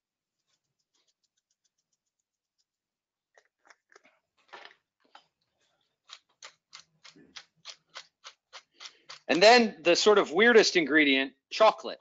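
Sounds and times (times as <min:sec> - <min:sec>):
pepper mill grinding: 0:06.1 - 0:09.4.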